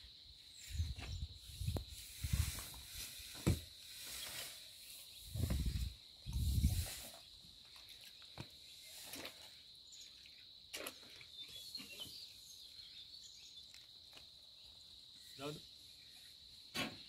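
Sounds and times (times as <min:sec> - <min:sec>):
insects droning: 0:00.0 - 0:17.0
faint clicks and chirps: 0:13.5 - 0:14.8.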